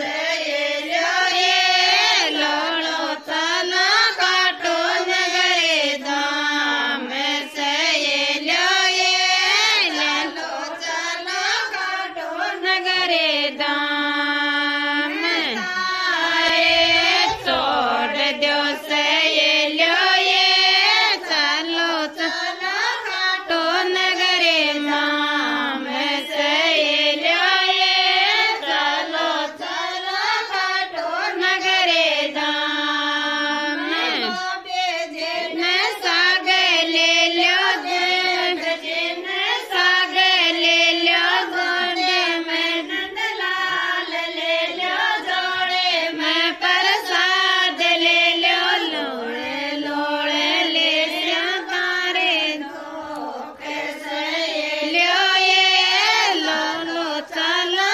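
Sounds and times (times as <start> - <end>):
woman singing folk song: 33.8 - 43.9.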